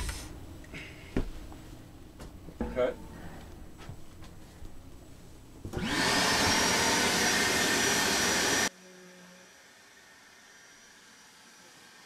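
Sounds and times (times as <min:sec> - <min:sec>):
electric motor whining: 0:05.8 - 0:12.0.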